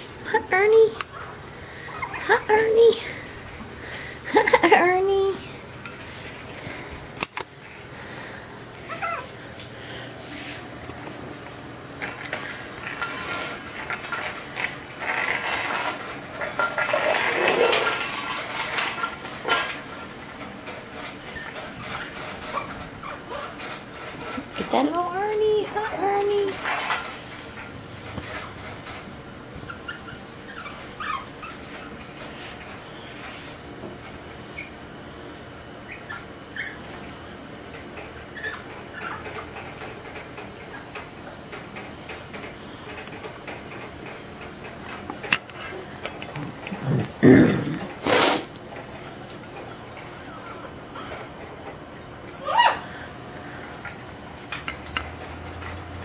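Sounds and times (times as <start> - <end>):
puppies squeaking and whimpering: 1.1 - 2.5, 8.8 - 9.4, 21.3 - 23.6, 29.6 - 32.2, 35.8 - 36.9, 38.2 - 39.6, 50.1 - 51.1
puppies scrambling on tile floor: 5.9 - 34.8, 35.7 - 51.8.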